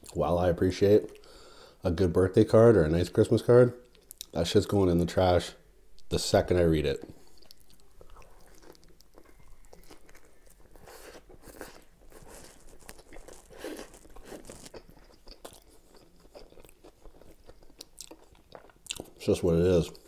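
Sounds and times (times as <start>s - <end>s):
person biting and chewing: 7.2s - 19.2s.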